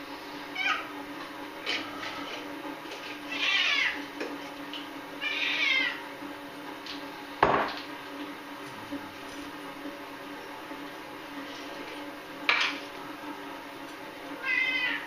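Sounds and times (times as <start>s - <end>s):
cat meowing: 3.3s - 4.0s, 5.2s - 6.0s, 14.4s - 15.0s.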